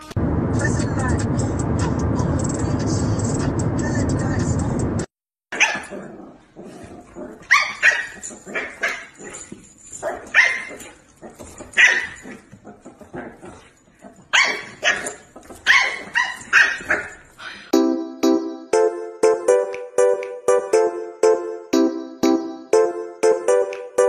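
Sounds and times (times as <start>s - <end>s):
dog barking: 5.5s - 6.2s, 7.4s - 12.4s, 14.2s - 17.7s.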